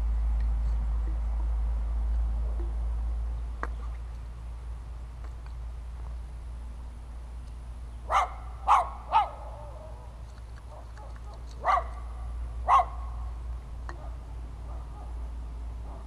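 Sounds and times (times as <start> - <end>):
dog barking: 8.1 - 10.0, 10.7 - 13.1, 14.0 - 15.2.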